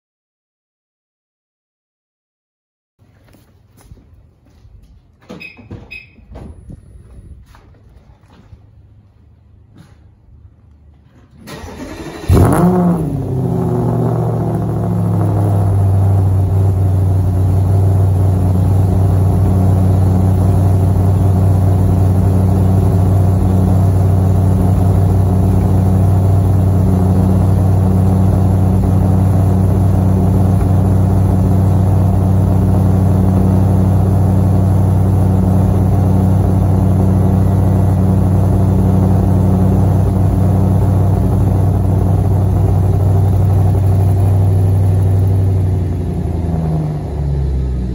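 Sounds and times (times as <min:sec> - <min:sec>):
car engine starting and idling: 0:11.0 - 0:47.9
engine cranking: 0:11.3 - 0:12.9.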